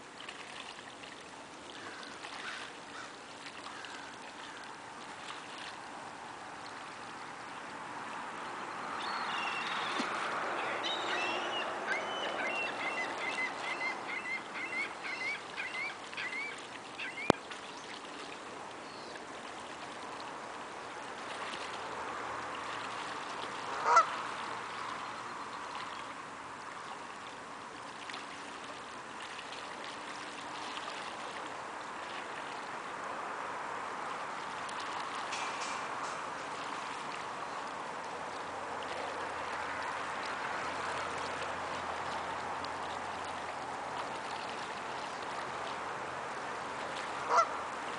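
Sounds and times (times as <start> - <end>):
water splashing: 0.0 - 47.9
geese calling: 10.6 - 17.4, 23.7 - 24.2, 47.2 - 47.6.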